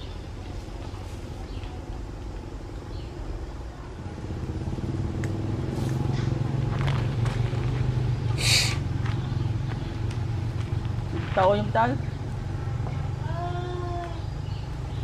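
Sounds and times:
low engine hum: 0:00.0 - 0:15.0.

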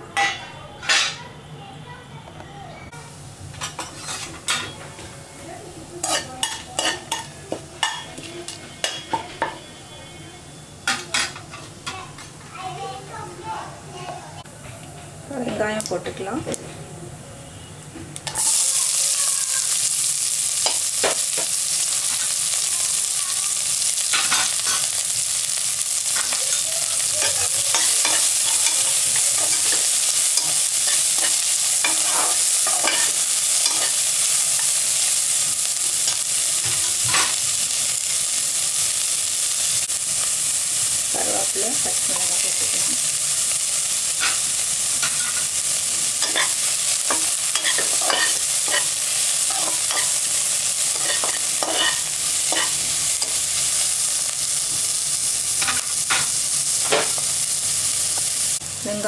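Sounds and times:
onions sizzling in hot oil: 0:02.9 - 0:14.6, 0:15.3 - 0:16.7, 0:17.4 - 0:59.0
spatula scraping a pot: 0:03.8 - 0:04.4.

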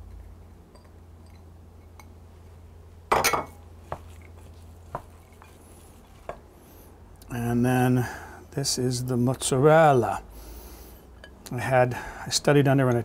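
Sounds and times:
glass bowls clinking: 0:03.1 - 0:03.6.

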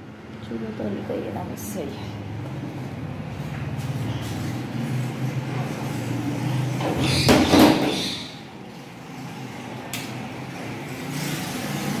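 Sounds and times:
door rattling scrape: 0:04.2 - 0:08.4.

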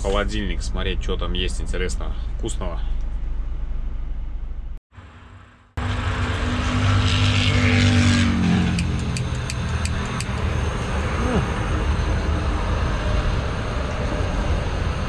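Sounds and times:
low steady hum: 0:00.0 - 0:07.8
highway traffic rumble: 0:05.0 - 0:15.0
vehicle passing by: 0:05.8 - 0:15.0.

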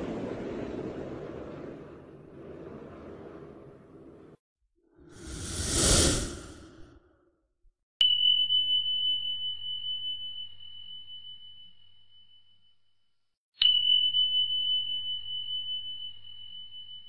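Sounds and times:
small bell chiming: 0:08.1 - 0:12.9, 0:13.6 - 0:17.0.

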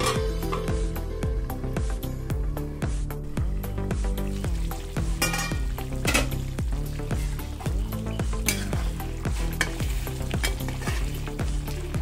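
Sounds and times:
background music with steady beat: 0:00.0 - 0:12.0
curry bubbling in a pan: 0:03.9 - 0:12.0
ladle stirring in a pan: 0:05.1 - 0:11.9.

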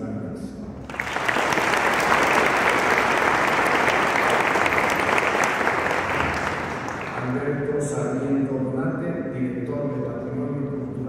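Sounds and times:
audience applauding: 0:00.9 - 0:07.6.

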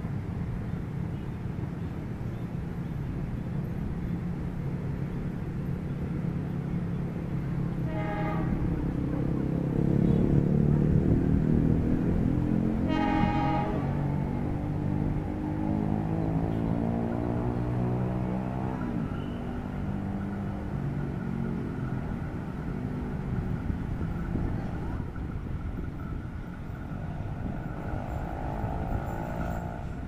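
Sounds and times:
low rumble of train: 0:00.0 - 0:30.0
diesel locomotive horn blasts: 0:07.7 - 0:10.6, 0:12.5 - 0:14.6.

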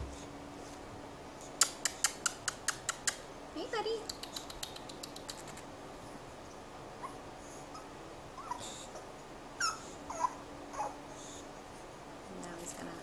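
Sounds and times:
puppies whimpering: 0:07.0 - 0:11.0.

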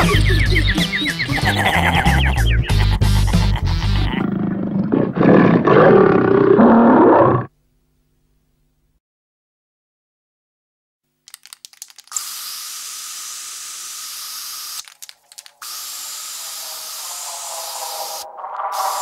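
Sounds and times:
spray can rattle: 0:11.3 - 0:19.0
spray can hissing: 0:11.4 - 0:19.0.

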